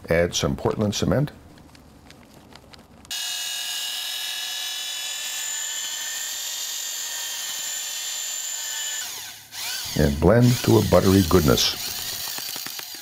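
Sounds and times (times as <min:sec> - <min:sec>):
electric drill mixer whining: 0:03.1 - 0:13.0.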